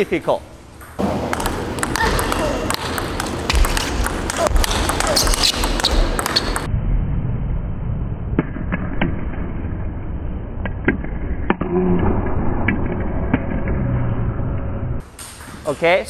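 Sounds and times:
table tennis ball clicks: 0.8s - 6.7s
low rumble: 6.7s - 15.0s.

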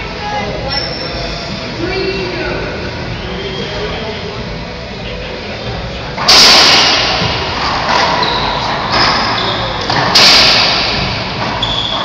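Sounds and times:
racquet hitting ball: 6.2s - 12.0s
short high squeaks: 11.6s - 12.0s.

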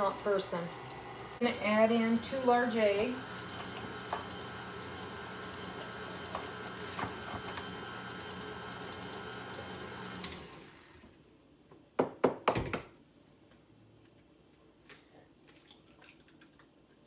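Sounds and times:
stand mixer running: 0.0s - 11.0s.

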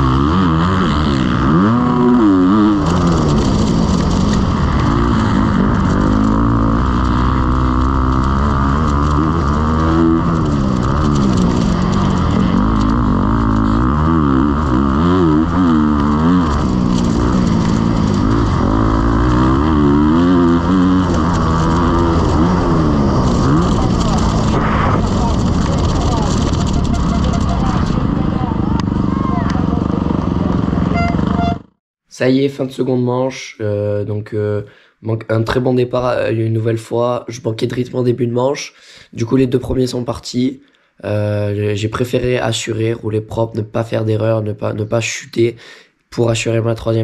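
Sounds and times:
motocross bike engine revving: 0.0s - 31.8s.

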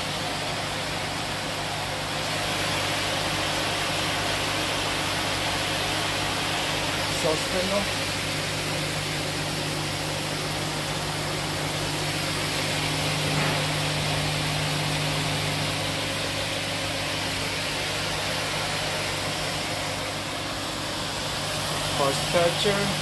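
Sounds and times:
machine hum with low tones: 0.0s - 23.0s.

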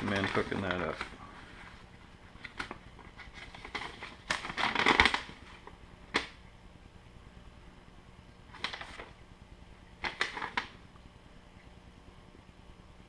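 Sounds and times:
sharp paper crack: 0.0s - 1.2s, 2.4s - 6.4s, 8.5s - 9.1s, 10.0s - 10.8s
paper rustling: 0.0s - 6.3s, 8.5s - 9.2s, 10.0s - 10.8s.

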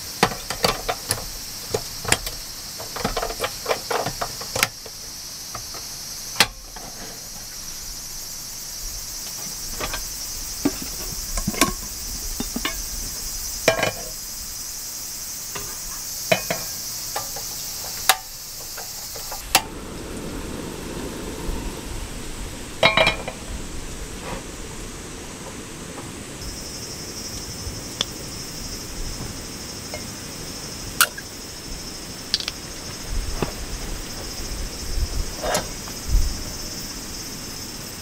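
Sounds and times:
gas canister clicking into stove: 0.0s - 7.5s, 9.3s - 12.8s, 13.7s - 14.2s, 15.6s - 19.7s
frying pan set on grate: 0.0s - 7.6s, 9.4s - 12.9s, 13.7s - 14.2s, 15.5s - 19.7s, 22.8s - 23.4s
gas burner rushing: 0.0s - 26.6s.

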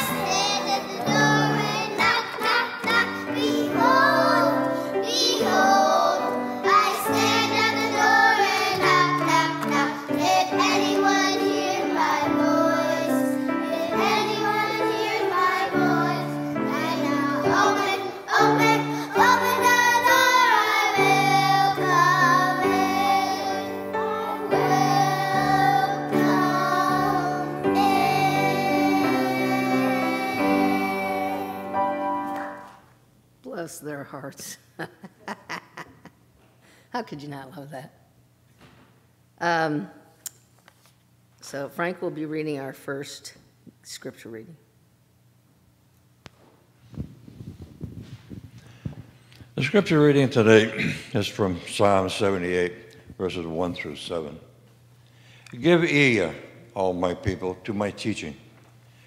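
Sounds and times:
children's choir singing: 0.0s - 32.7s
instrumental accompaniment: 0.0s - 32.8s.

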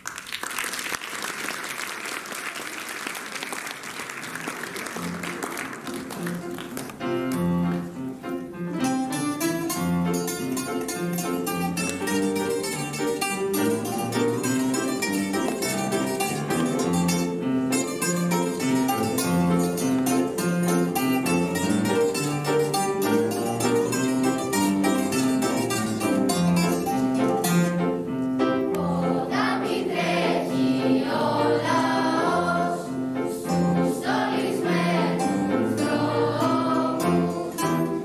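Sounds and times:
applause: 0.0s - 7.0s
bouzoukis guitars and piano ensemble: 0.1s - 38.0s.

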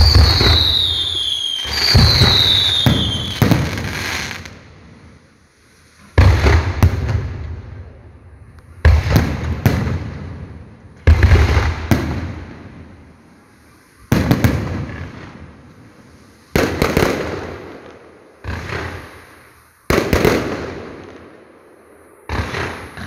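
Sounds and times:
firework whistles falling in pitch: 0.0s - 4.5s
firework bangs: 0.0s - 5.0s, 6.1s - 8.0s, 8.8s - 13.1s, 14.0s - 23.0s.

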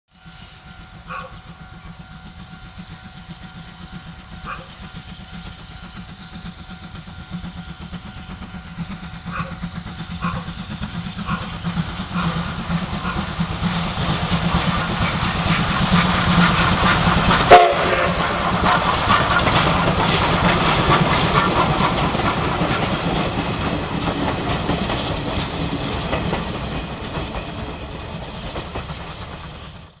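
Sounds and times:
steam locomotive exhaust beats: 0.1s - 30.0s
train coaches rolling over rail joints: 8.1s - 30.0s.

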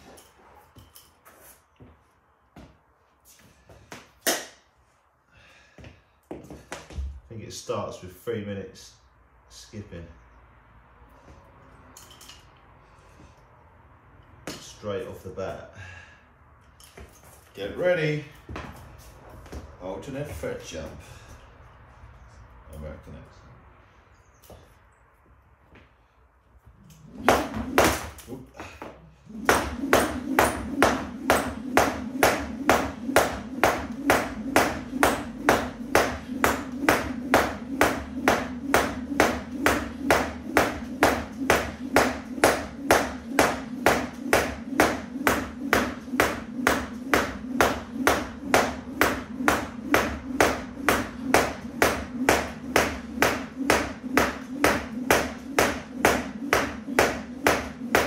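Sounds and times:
skipping rope striking floor mat: 2.6s - 4.6s, 5.8s - 7.2s, 18.4s - 20.6s, 27.0s - 58.0s.

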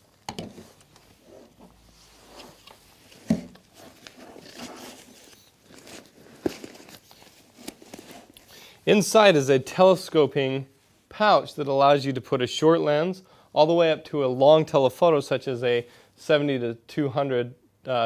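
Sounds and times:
nylon backpack rustling: 0.6s - 8.5s.

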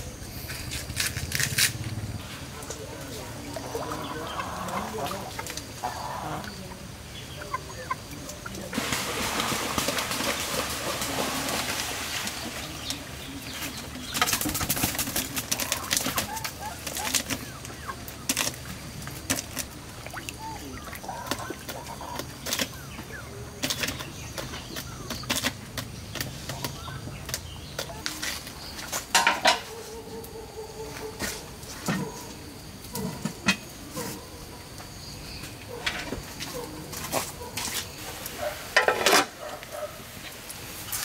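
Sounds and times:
chickens calling: 2.2s - 41.0s
chickens flapping wings: 8.4s - 22.8s.

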